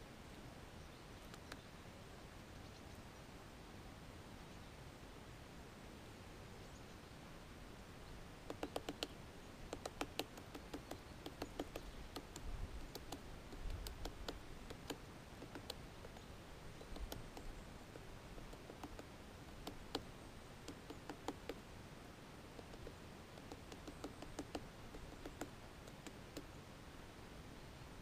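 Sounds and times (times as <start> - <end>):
woodpecker tapping on pine cone: 1.2 - 1.7, 8.4 - 21.7, 22.5 - 26.6.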